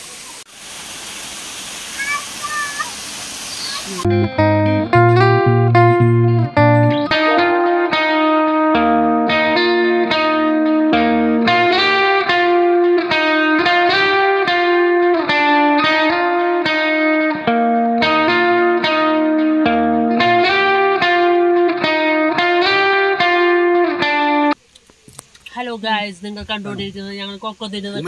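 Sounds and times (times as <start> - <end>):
plucked guitar notes: 4.0 - 24.6.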